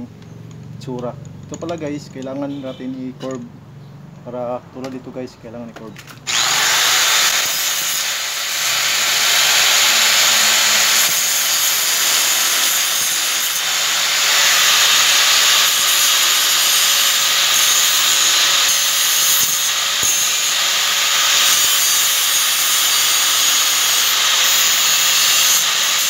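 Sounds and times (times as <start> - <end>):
angle grinder grinding metal: 6.3 - 26.0.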